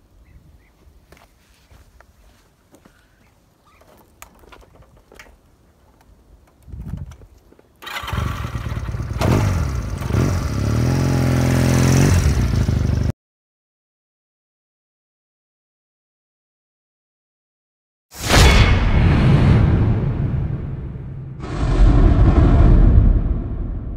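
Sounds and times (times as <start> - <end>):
faint footsteps: 0.7 - 7.8
motorcycle engine starting and idling: 7.8 - 13.1.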